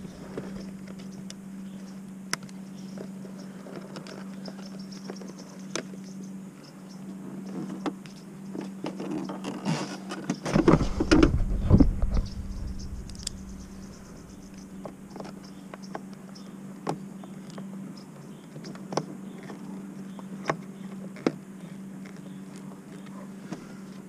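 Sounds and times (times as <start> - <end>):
steady low hum: 0.0 - 8.8, 10.4 - 18.5.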